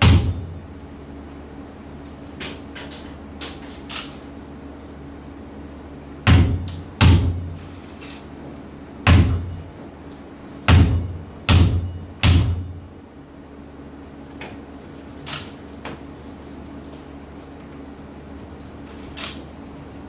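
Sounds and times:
low steady hum: 0.0s - 20.0s.

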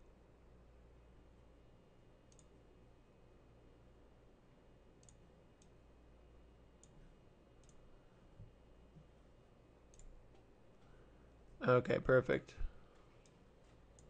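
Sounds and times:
computer mouse clicks: 2.2s - 2.6s, 5.0s - 5.8s, 6.8s - 7.8s, 9.9s - 10.5s, 13.2s - 14.0s.

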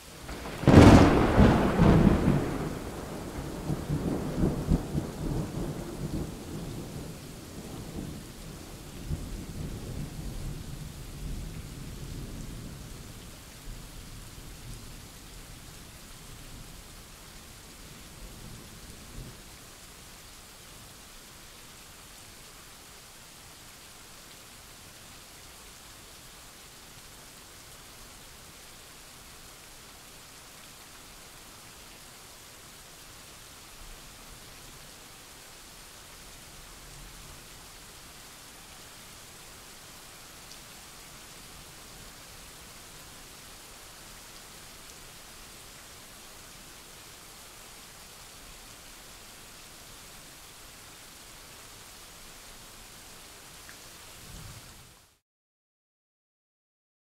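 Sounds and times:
steady rain: 0.0s - 55.2s
rolling thunder: 0.3s - 8.2s.

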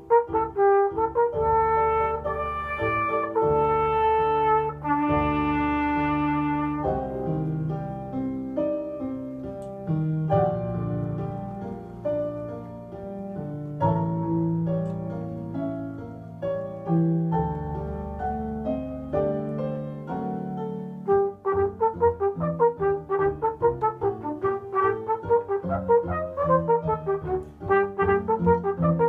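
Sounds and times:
flugelhorn melody: 0.0s - 7.8s, 18.3s - 29.0s
piano accompaniment: 0.0s - 29.0s.

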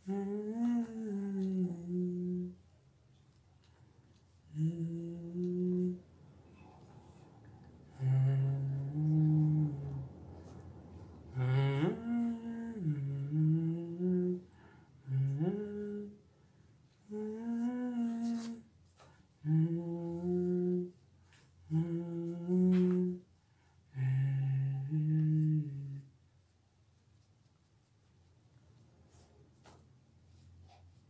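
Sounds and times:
man humming: 0.0s - 2.6s, 4.5s - 6.0s, 7.9s - 10.1s, 11.4s - 16.2s, 17.0s - 18.7s, 19.4s - 21.0s, 21.6s - 23.3s, 23.9s - 26.1s.

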